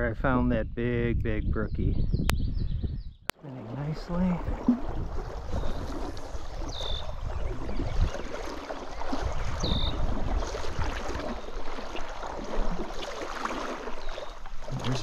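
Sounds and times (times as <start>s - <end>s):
stream water gurgling: 3.3s - 15.0s.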